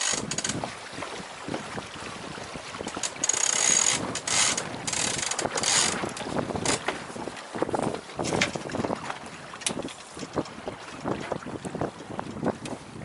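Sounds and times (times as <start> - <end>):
rope ratcheting through pulley blocks: 0.0 - 0.6, 2.9 - 6.8.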